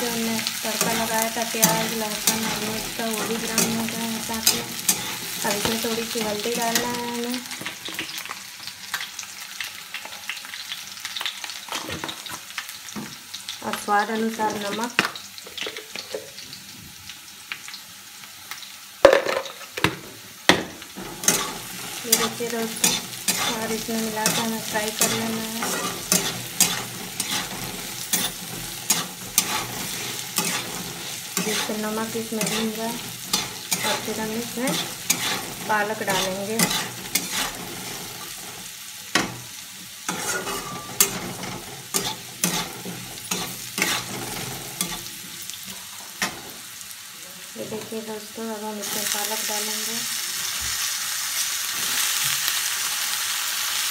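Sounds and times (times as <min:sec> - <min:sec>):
potatoes sizzling in oil: 0:00.0 - 0:53.9
spatula knocking and scraping pan: 0:19.1 - 0:38.5, 0:40.1 - 0:45.1.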